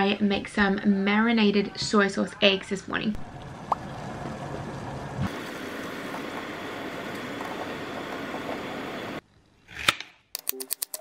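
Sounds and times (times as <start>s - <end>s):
water boiling and bubbling: 3.0s - 9.2s.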